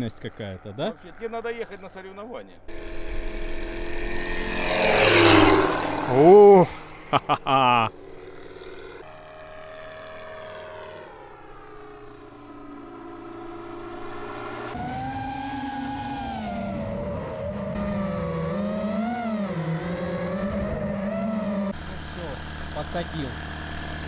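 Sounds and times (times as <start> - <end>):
model airplane engine and propeller: 2.7 - 7.3, 7.9 - 15.2, 15.9 - 24.0.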